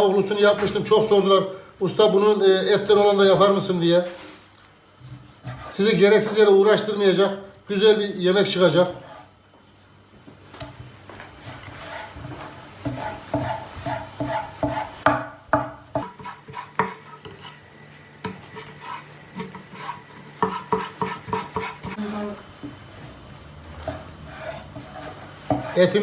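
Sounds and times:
knife scraping strokes: 5.0 - 6.0, 9.0 - 10.1, 11.4 - 15.0, 16.0 - 17.7, 18.3 - 22.3, 23.8 - 26.0.

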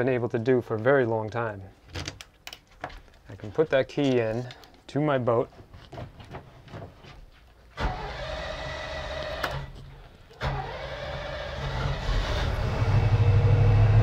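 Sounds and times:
engine starter cranking: 7.8 - 13.1.

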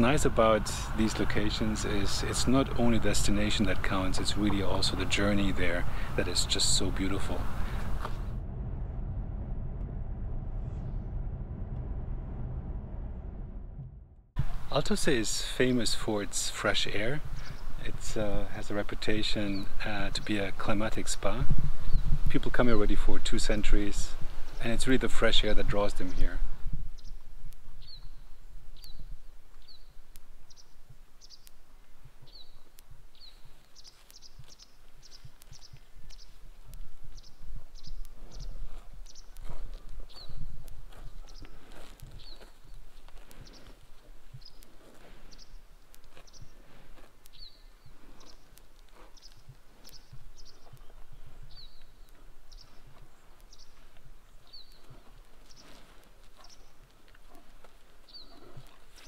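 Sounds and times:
low wind rumble: 0.0 - 55.7
soft low thuds: 7.1 - 14.6
small birds chirping: 14.8 - 22.9, 23.5 - 59.0.

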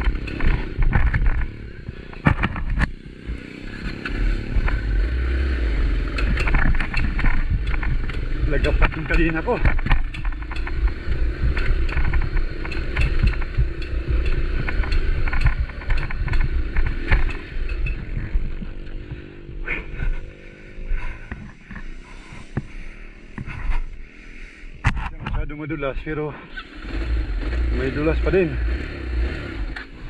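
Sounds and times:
knocks and rattles: 0.0 - 3.0, 5.9 - 22.7
motorcycle engine rumbling: 0.0 - 30.0.

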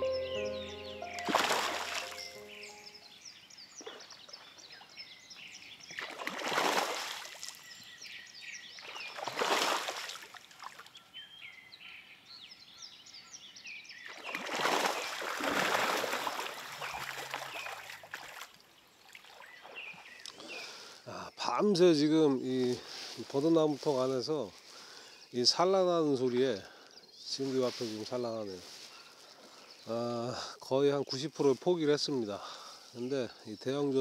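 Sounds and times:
small birds chirping: 0.0 - 6.2, 7.2 - 9.4, 10.5 - 34.0
fish splashing at water surface: 14.3 - 18.4.

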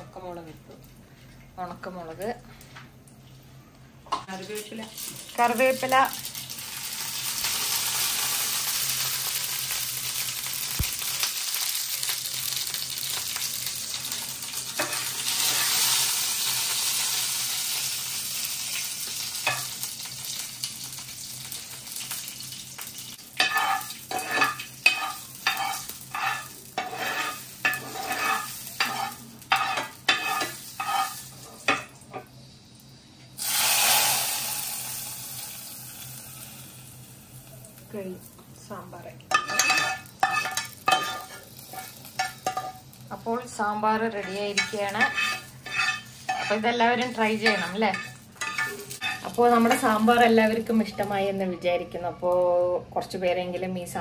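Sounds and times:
spices sizzling in hot oil: 4.2 - 51.4
metal spoon clinking against pan: 23.4 - 31.8, 39.3 - 42.8, 44.2 - 49.9.

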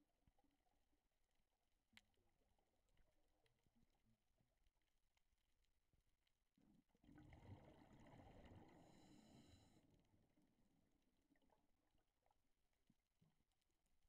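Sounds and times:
underwater exhaled bubbles rumbling: 6.9 - 9.7.

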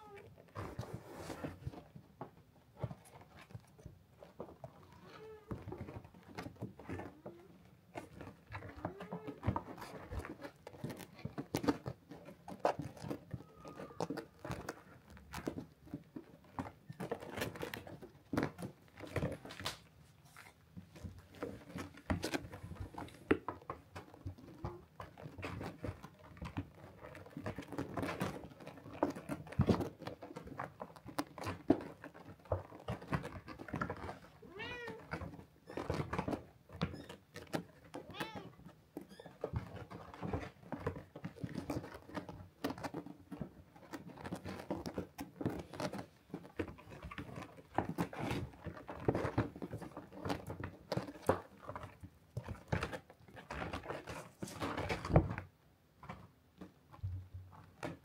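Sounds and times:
kitten scratching and rustling: 0.0 - 58.0
kitten meowing: 34.5 - 35.0, 38.1 - 38.5.

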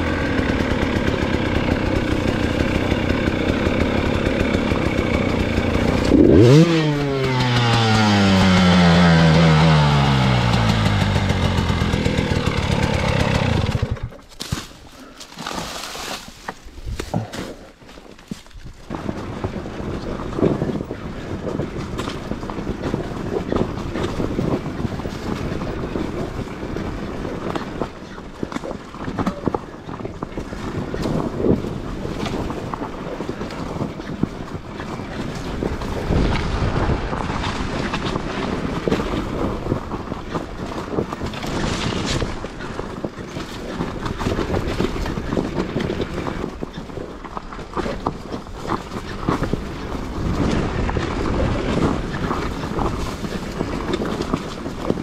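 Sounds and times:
dirt bike engine revving: 0.0 - 14.2
wind buffeting microphone: 29.3 - 55.0.

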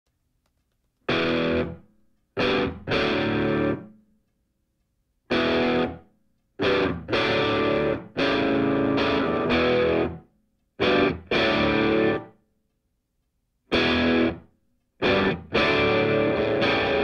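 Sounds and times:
distorted electric guitar chords: 1.1 - 1.8, 2.4 - 3.9, 5.3 - 6.0, 6.6 - 10.2, 10.8 - 12.3, 13.7 - 14.4, 15.0 - 17.0.

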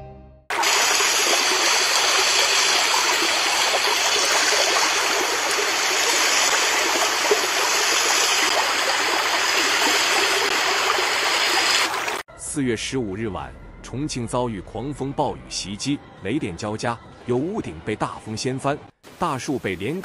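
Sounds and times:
water rushing down whirlpool: 0.5 - 12.2.

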